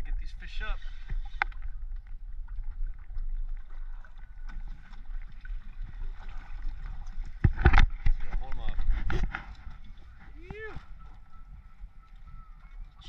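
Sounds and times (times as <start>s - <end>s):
wind rumbling on microphone: 5.7s - 13.0s.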